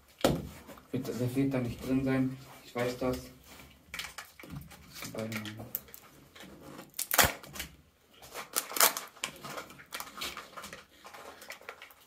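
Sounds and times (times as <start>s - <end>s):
plastic capsule clicking and crackling: 3.9s - 6.1s, 8.4s - 12.0s.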